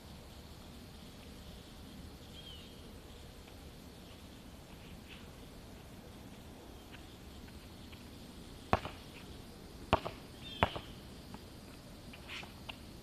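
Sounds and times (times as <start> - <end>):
birds chirping: 2.2 - 3.3, 10.2 - 11.1
basketball bouncing on asphalt: 8.7 - 9.2, 9.9 - 11.4.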